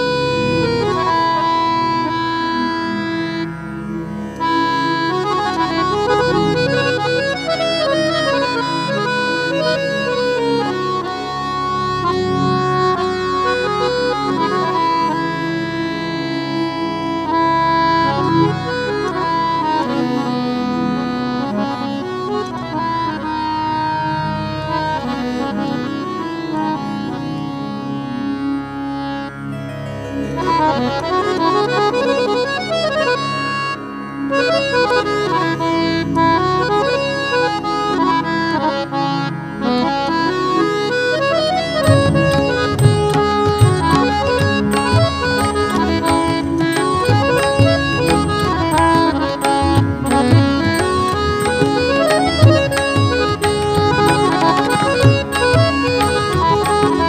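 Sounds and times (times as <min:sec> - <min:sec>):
harmonium melody: 0:00.0 - 0:57.0
tabla rhythm: 0:40.9 - 0:57.0.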